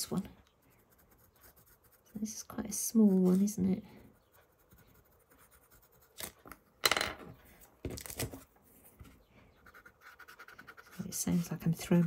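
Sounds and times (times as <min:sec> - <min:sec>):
pencil clattering on desk: 0:06.4 - 0:08.1.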